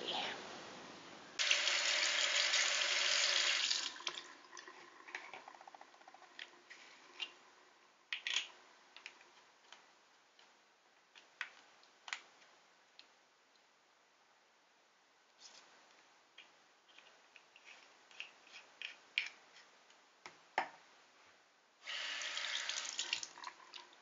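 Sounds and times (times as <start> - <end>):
tap water running: 1.4 - 5.2, 21.8 - 24.0.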